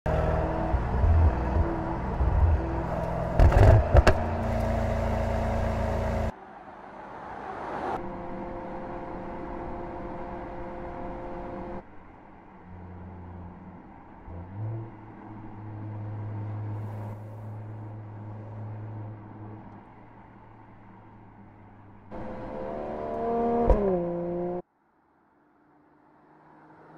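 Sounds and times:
car engine: 0:00.0 - 0:26.9
exhaust pops: 0:01.1 - 0:04.8.

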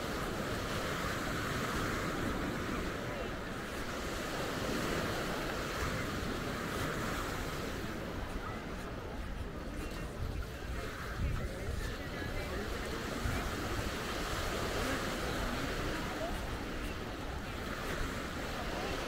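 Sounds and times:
surf washing onto beach: 0:00.0 - 0:19.0
wind rumbling on microphone: 0:00.0 - 0:19.0.

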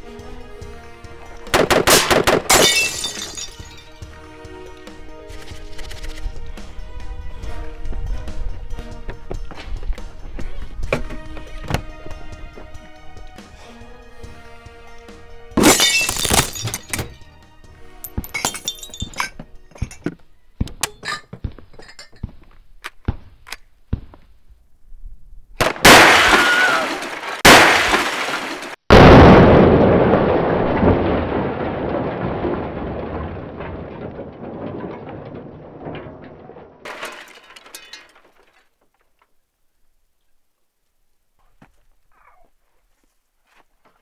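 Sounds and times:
background music: 0:00.0 - 0:22.0
sharp cracks and knocks: 0:01.4 - 0:02.7, 0:25.6 - 0:28.8
loud explosion blasts: 0:28.9 - 0:34.6.

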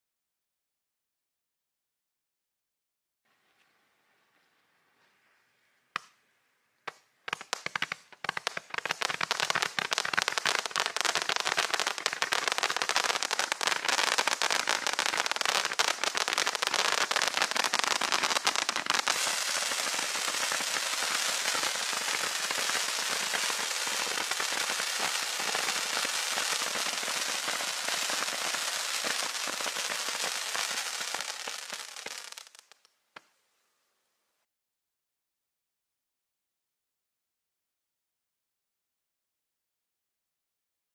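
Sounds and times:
firework cake rapid-fire pops: 0:06.9 - 0:32.9.

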